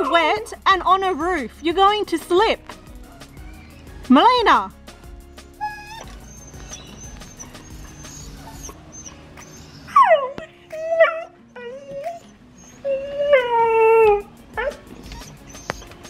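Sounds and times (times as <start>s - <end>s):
dog howling and yowling: 0.0s - 0.5s, 5.6s - 16.0s.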